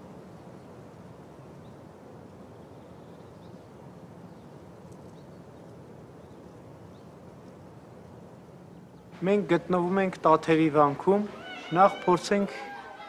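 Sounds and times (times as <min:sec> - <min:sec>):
faint bird chirps: 0:02.5 - 0:07.2
low rumbling noise: 0:05.4 - 0:13.0.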